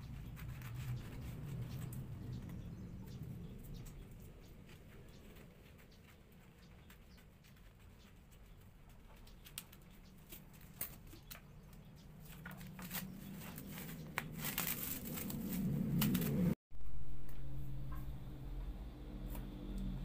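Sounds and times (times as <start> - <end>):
plastic film crinkling: 12.2 - 16.6.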